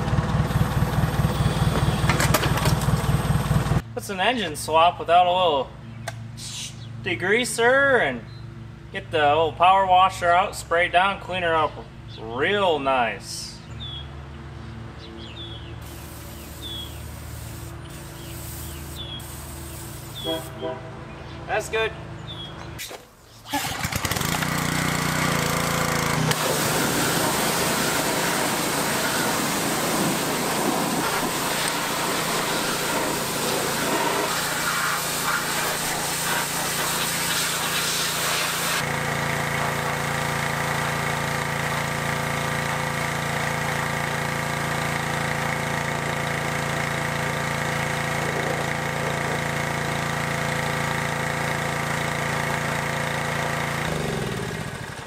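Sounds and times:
pressure washer motor hum: 0:00.0 - 0:03.8, 0:15.8 - 0:20.8, 0:23.6 - 0:55.0
water spray hiss: 0:15.8 - 0:20.6, 0:26.3 - 0:38.9.

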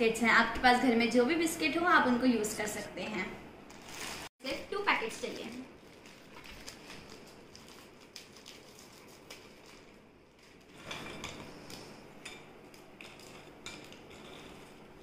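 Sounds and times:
plastic packet rustling: 0:03.7 - 0:04.3, 0:04.9 - 0:10.9.

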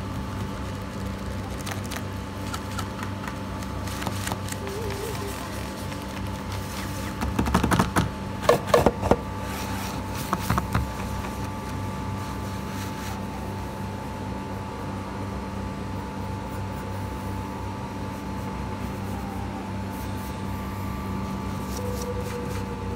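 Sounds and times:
steady hum: 0:00.0 - 0:22.9
paper and notebook handled: 0:00.3 - 0:08.0, 0:21.5 - 0:22.8.

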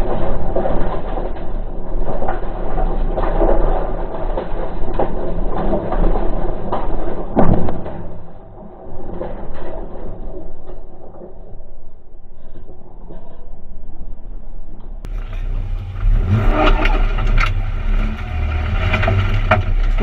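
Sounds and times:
loud thump: 0:07.4 - 0:08.4
rally car engine running hard: 0:15.1 - 0:20.0.

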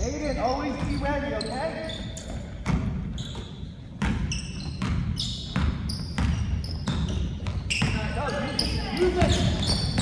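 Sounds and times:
sneakers squeaking: 0:00.0 - 0:10.0
basketball dribbling on wood floor: 0:02.6 - 0:10.0.

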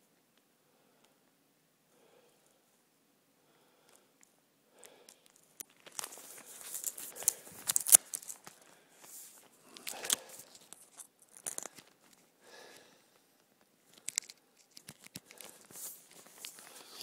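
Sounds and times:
duct tape ripping: 0:05.6 - 0:08.5.

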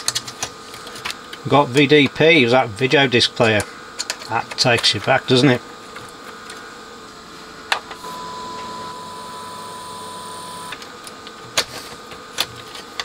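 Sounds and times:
steady sine test tone: 0:07.8 - 0:10.8.

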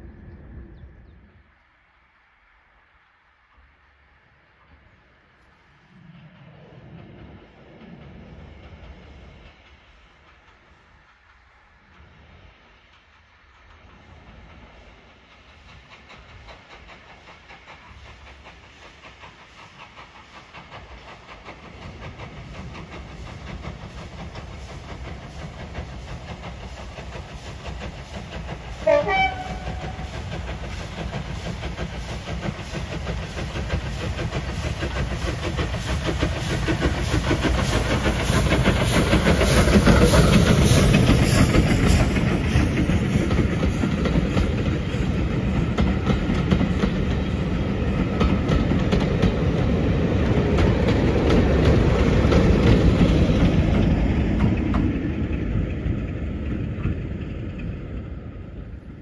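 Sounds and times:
steam locomotive exhaust beats: 0:02.8 - 0:59.0
train whistle blast: 0:28.8 - 0:30.0.

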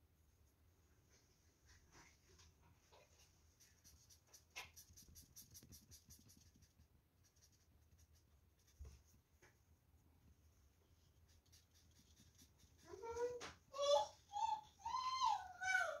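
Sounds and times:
marker scratching on paper: 0:03.5 - 0:09.1, 0:11.0 - 0:13.4.

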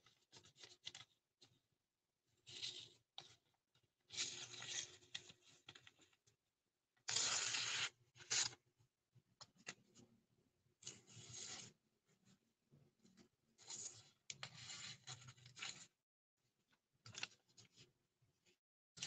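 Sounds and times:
knife slicing paper: 0:07.1 - 0:08.6.

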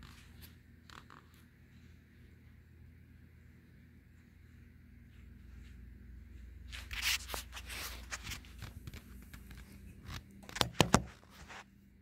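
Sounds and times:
faint low hum: 0:00.0 - 0:12.0.

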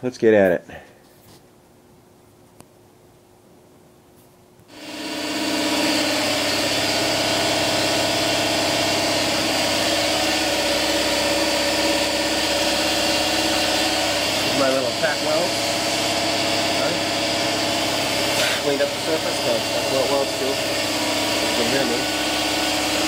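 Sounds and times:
air compressor running: 0:04.7 - 0:23.0.

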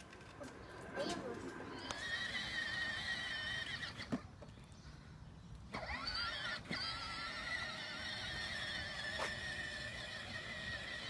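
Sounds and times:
electric motors whining: 0:01.5 - 0:04.2, 0:05.7 - 0:11.0.

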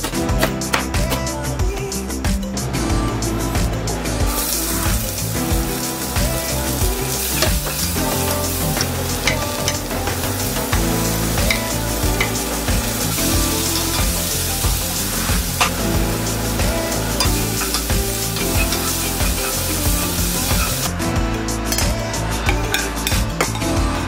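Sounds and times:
vegetables sizzling in oil: 0:04.3 - 0:20.9.

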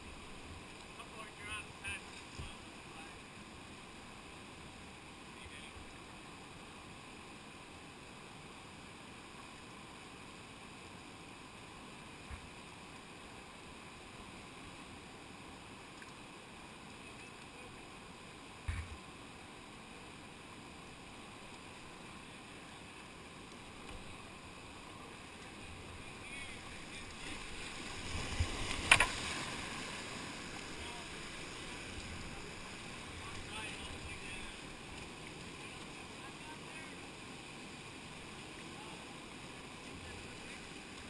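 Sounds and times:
river rushing over rocks: 0:00.0 - 0:41.0
low thump: 0:18.6 - 0:19.0.

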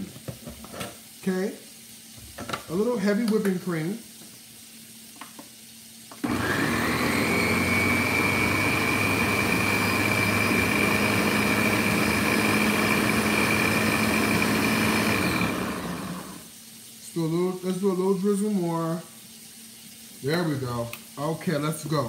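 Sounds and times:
blender motor whining: 0:06.2 - 0:16.5.

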